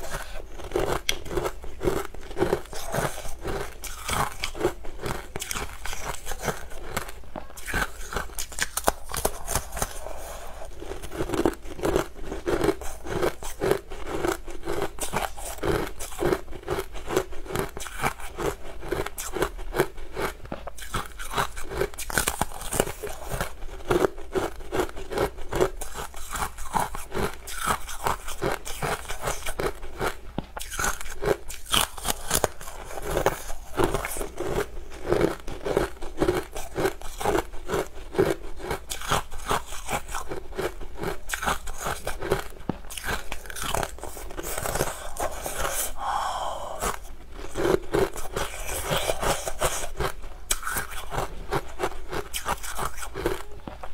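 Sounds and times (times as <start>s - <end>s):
ice crunching while chewed: 0.0s - 53.9s.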